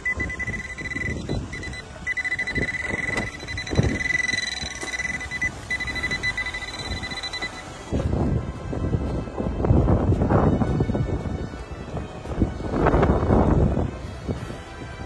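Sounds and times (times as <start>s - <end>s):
metal detector alert tone: 0.0s - 7.7s.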